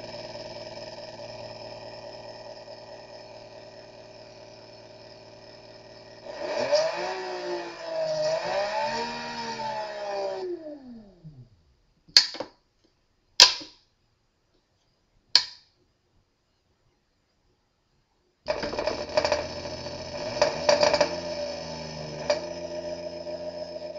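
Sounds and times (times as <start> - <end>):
electric motor whine: 0.0 - 11.2, 18.5 - 23.9
sharp clicks: 12.1 - 13.8, 15.3 - 15.7.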